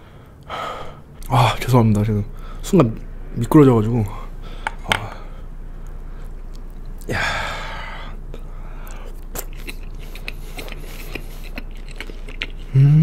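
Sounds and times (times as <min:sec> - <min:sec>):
wet chewing clicks and smacks: 0:05.8 - 0:07.1, 0:08.8 - 0:12.7.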